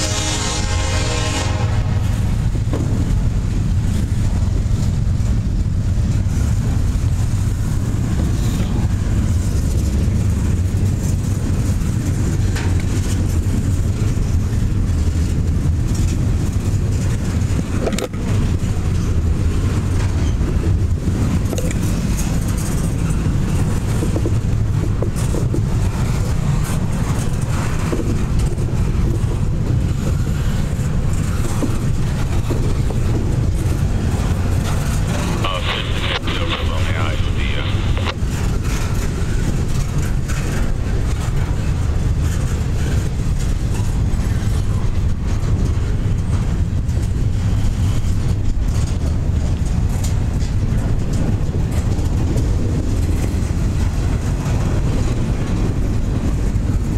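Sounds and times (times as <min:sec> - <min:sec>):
train wheels rumbling on rail: 0:00.0 - 0:56.9
clicks and clanks: 0:17.7 - 0:18.3.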